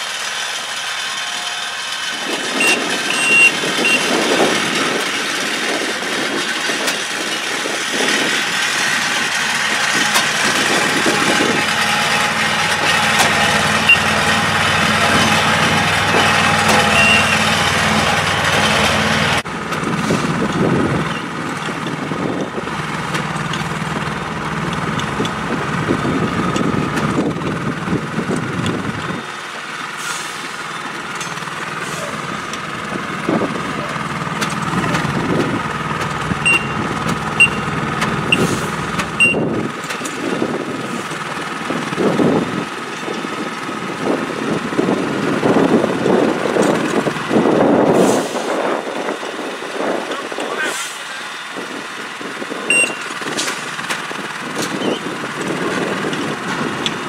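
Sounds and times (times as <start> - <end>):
track machine engines running: 0.0 - 57.0
short high beeps: 2.6 - 4.1, 13.8 - 14.1, 16.9 - 17.4, 36.4 - 37.7, 39.2 - 39.4, 52.7 - 53.1.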